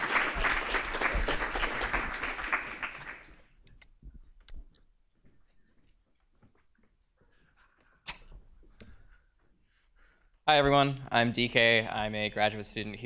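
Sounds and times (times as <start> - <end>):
audience applauding: 0.0 - 3.6.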